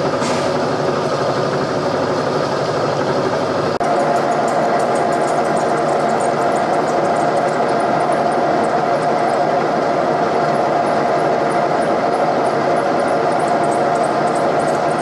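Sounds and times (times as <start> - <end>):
milling machine drilling metal: 3.8 - 15.0.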